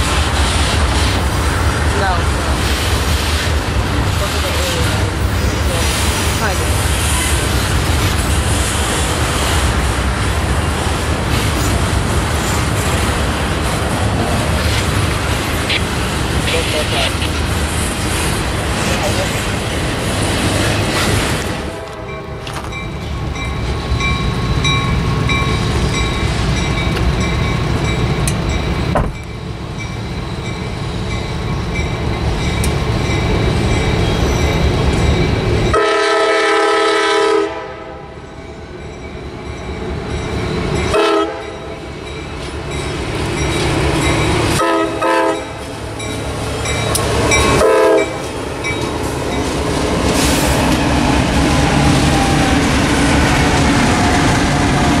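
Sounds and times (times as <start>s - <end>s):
train rumbling past: 0.0s - 55.0s
train horn blasts: 35.7s - 38.2s, 40.9s - 41.6s, 44.5s - 45.6s, 47.5s - 48.2s.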